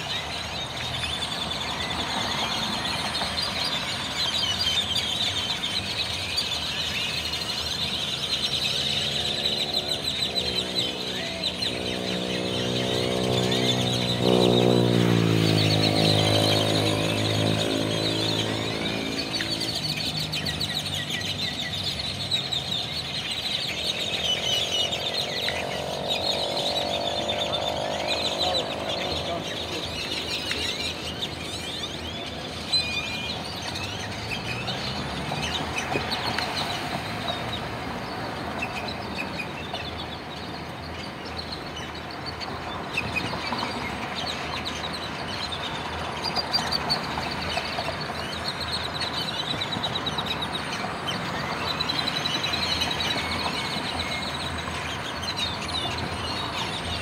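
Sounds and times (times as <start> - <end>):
flock of blackbirds chattering: 0.0 - 57.0
vehicle engine passing: 8.7 - 20.8, 23.7 - 31.5.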